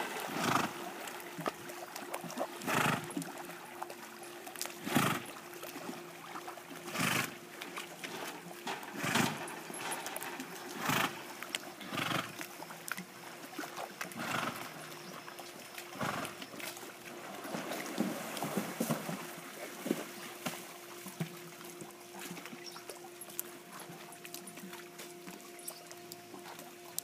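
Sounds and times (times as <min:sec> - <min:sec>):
faint steady hum: 0:00.0 - 0:27.0
horse snorting breaths: 0:00.2 - 0:00.8, 0:02.6 - 0:03.2, 0:04.8 - 0:05.3, 0:06.9 - 0:07.4, 0:08.9 - 0:10.1, 0:10.8 - 0:12.4, 0:14.2 - 0:14.7, 0:16.0 - 0:16.4.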